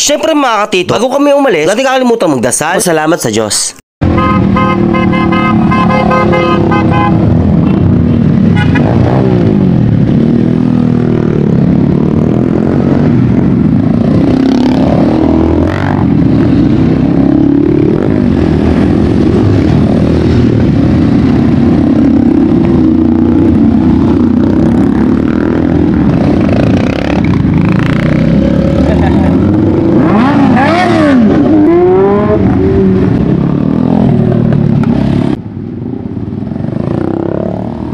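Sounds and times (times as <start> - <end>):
horn beeping: 4.0 - 7.2
motorcycle engines revving: 4.0 - 37.9
motorcycles passing close: 4.0 - 37.9.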